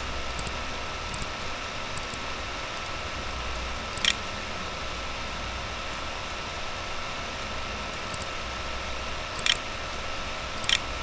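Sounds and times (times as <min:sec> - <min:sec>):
computer mouse clicking: 0:00.3 - 0:01.3, 0:01.9 - 0:02.2, 0:03.9 - 0:04.2, 0:08.1 - 0:08.3, 0:09.4 - 0:09.6, 0:10.6 - 0:10.9.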